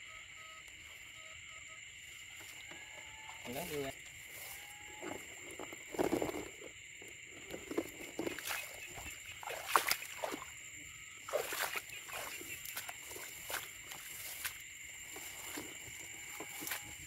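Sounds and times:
frogs calling: 0:00.0 - 0:17.0
insects chirping: 0:00.0 - 0:17.0
footsteps splashing in shallow water: 0:07.5 - 0:10.6, 0:11.2 - 0:17.0.

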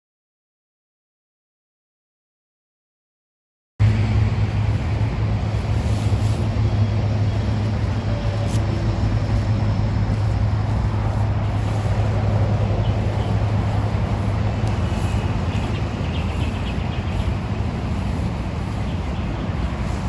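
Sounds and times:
low rumble: 0:03.8 - 0:20.0.

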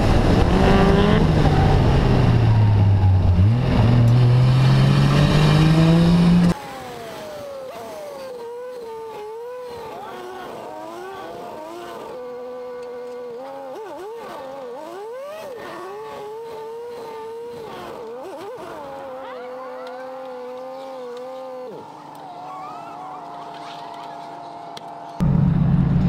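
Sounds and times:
car engine revving: 0:00.0 - 0:07.0.

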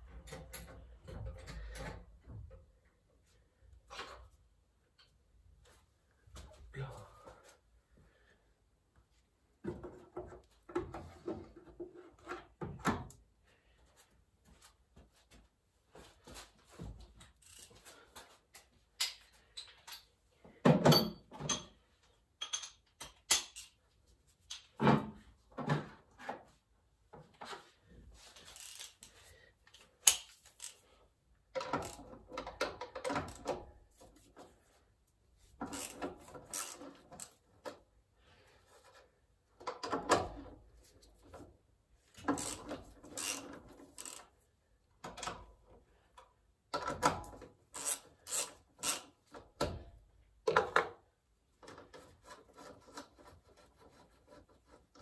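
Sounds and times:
tools and metal parts clanking: 0:18.5 - 0:23.8, 0:24.4 - 0:26.0.

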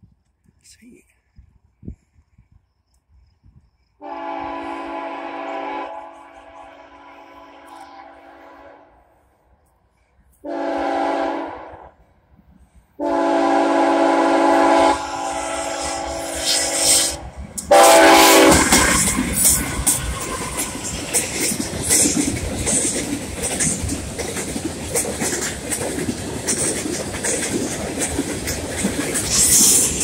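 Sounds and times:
locomotive air horn blasts: 0:04.0 - 0:08.9, 0:10.4 - 0:11.8, 0:13.0 - 0:18.6
train wheels clattering over rail joints: 0:18.5 - 0:30.0.

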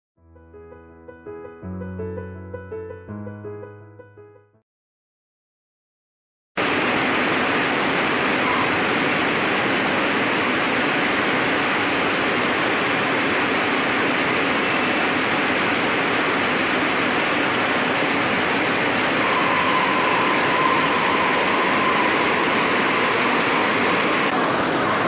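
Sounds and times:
textile machinery running: 0:06.6 - 0:25.0.

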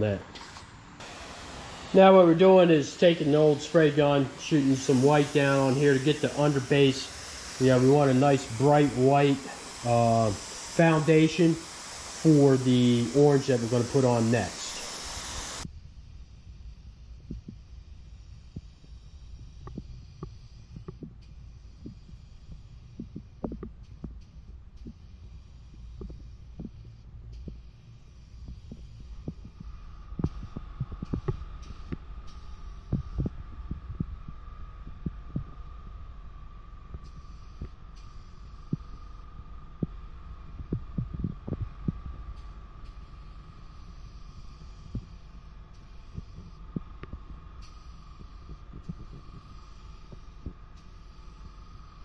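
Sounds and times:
low steady hum: 0:00.0 - 0:52.0
paint spray gun hissing: 0:01.0 - 0:52.0
low rumble: 0:28.6 - 0:42.9.

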